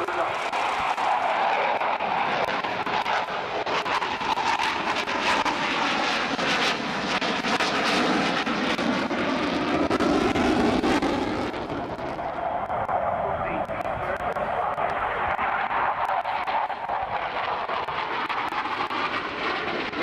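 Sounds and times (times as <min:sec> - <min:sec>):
jet engine roar: 0:00.0 - 0:20.0.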